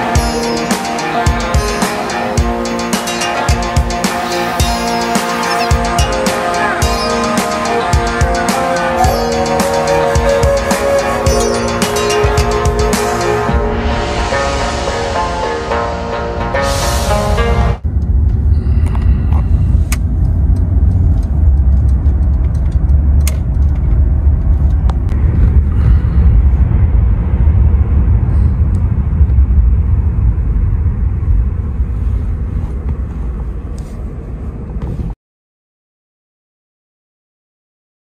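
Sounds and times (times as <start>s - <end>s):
car road and engine rumble: 17.8s - 35.2s.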